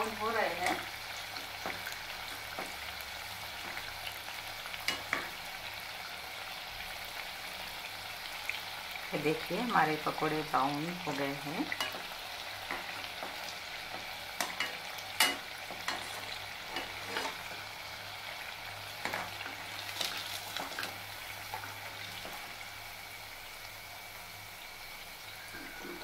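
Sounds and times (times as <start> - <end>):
frying in hot oil sizzle: 0.0 - 26.0
wire skimmer scraping a pot: 14.4 - 17.6.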